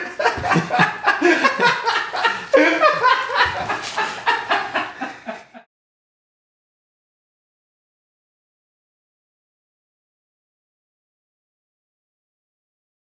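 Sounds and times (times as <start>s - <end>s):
man laughing: 0.0s - 5.7s.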